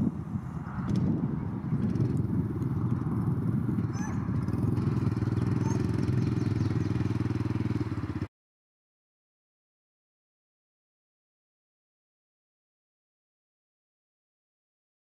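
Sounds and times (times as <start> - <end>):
small engine idling: 1.7 - 8.3.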